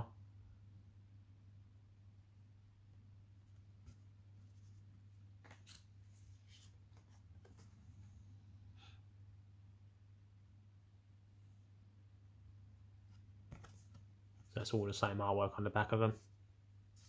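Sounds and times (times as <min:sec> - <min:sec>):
low steady hum: 0:00.0 - 0:17.0
cards being shuffled: 0:05.4 - 0:07.7, 0:13.1 - 0:14.1.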